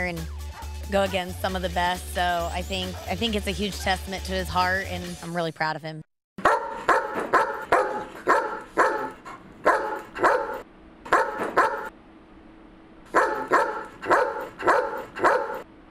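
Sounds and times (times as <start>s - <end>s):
dog barking: 6.4s - 11.9s, 13.1s - 15.6s.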